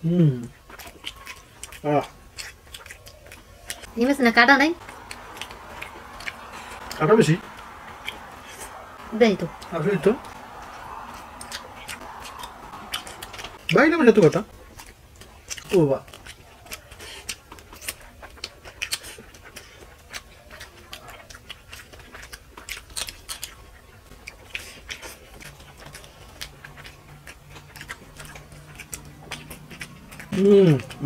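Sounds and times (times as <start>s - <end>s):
chewing and mouth clicks: 0.4s - 31.0s
faint low hum: 3.1s - 15.6s
fingers mixing rice on plate: 15.5s - 31.0s.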